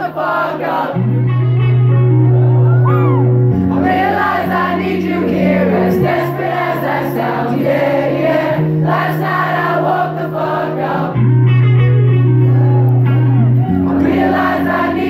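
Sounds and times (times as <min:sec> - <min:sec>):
voices singing: 0:00.0 - 0:01.2, 0:03.7 - 0:11.2, 0:13.7 - 0:15.0
piano and keyboard chords: 0:00.0 - 0:15.0.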